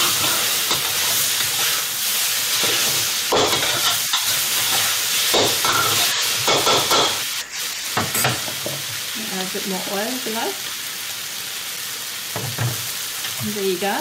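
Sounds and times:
metal spatula scraping a wok: 0.0s - 8.5s
noodles sizzling in a wok: 0.0s - 14.0s.

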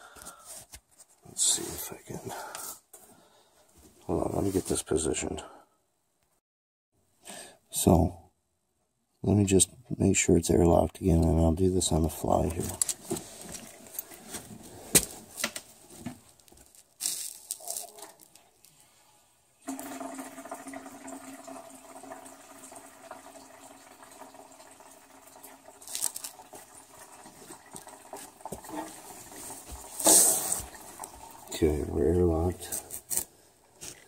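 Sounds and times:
water running and gurgling: 19.7s - 31.7s.

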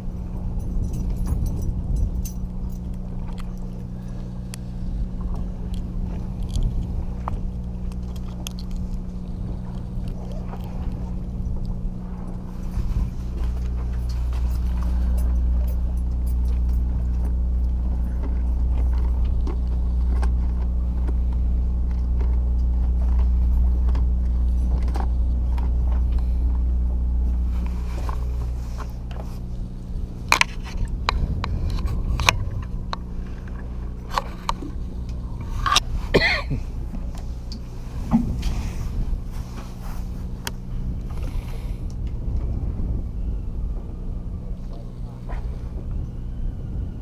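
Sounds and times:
boat engine humming: 0.0s - 47.0s.

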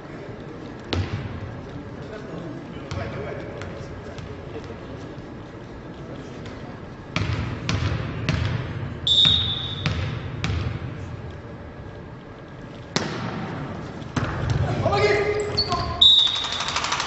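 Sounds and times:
referee's whistle: 9.0s - 9.9s, 15.6s - 16.8s
ball being struck: 12.9s - 14.6s.

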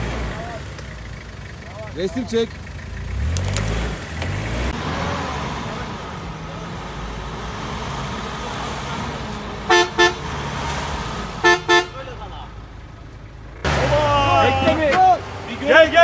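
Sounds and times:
engine running steadily: 0.0s - 7.4s
car horn double beeps: 9.7s - 10.2s, 11.4s - 12.1s.

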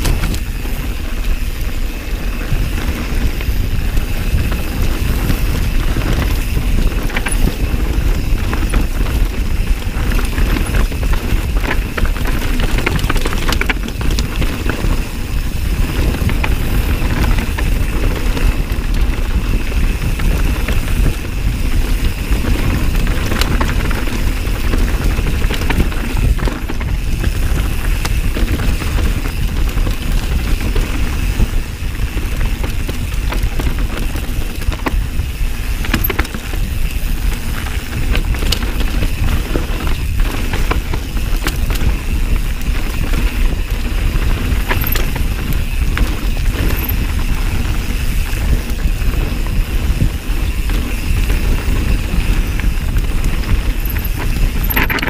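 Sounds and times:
bike clicks and rattles: 0.0s - 55.0s
tyres rumbling on dirt: 0.0s - 55.0s
wind on microphone: 0.0s - 55.0s.

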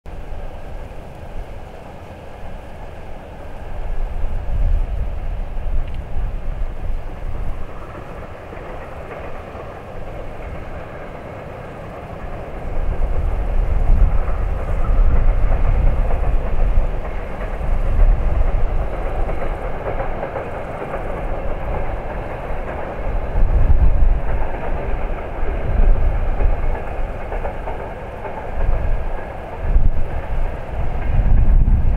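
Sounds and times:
freight train wheels rumbling: 0.1s - 31.9s.

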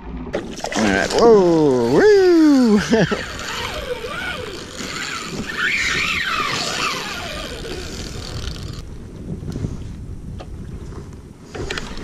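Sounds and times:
water sloshing against kayak hull: 0.0s - 8.8s
wind buffeting microphone: 0.9s - 12.0s
faint wavering cries: 1.6s - 8.5s.

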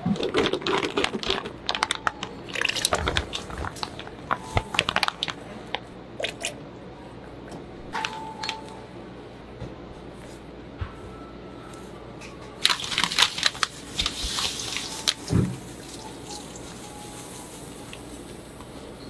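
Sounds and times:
plastic bag crackling: 0.1s - 5.8s, 12.6s - 17.8s.

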